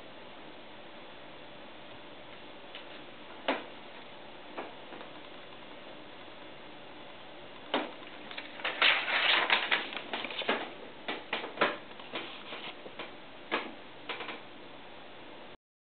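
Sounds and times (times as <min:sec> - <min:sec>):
paper crackling and rustling: 0:07.7 - 0:13.1.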